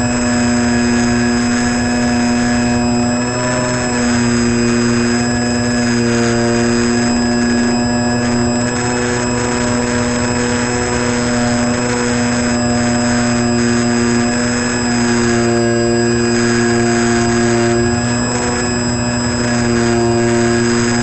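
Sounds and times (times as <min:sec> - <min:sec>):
model airplane motor and propeller: 0:00.0 - 0:21.0.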